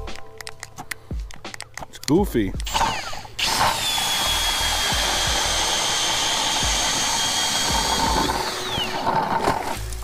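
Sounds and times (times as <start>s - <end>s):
drill motor whine: 2.7s - 9.7s
ice auger cutting hiss: 2.7s - 10.0s.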